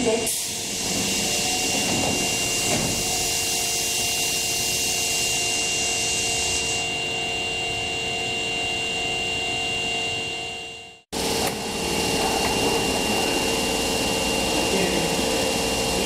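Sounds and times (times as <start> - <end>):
subway train running: 0.0 - 6.8, 11.2 - 16.0.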